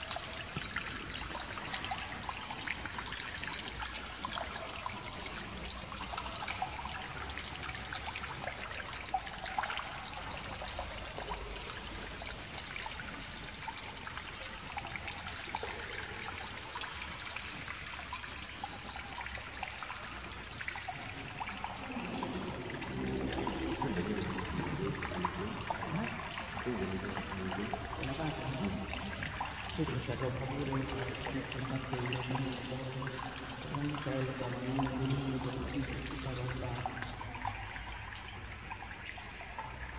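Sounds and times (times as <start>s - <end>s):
water trickling: 0.0s - 39.9s
voices: 21.4s - 37.4s.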